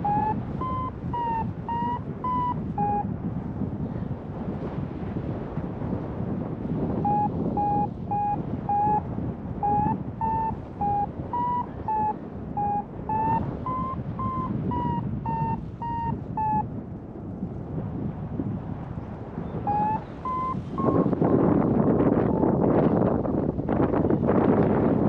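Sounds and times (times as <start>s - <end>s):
variometer beeping: 0.0s - 3.1s, 7.0s - 9.0s, 9.6s - 16.6s, 19.7s - 21.4s
wind on microphone: 0.0s - 25.0s.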